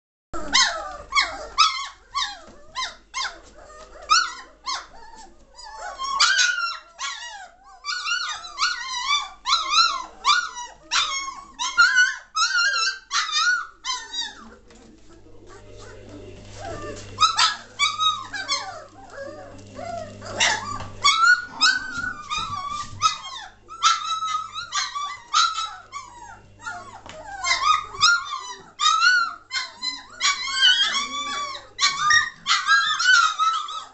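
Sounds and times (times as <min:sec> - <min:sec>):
puppies whining and yelping: 0:00.4 - 0:33.9.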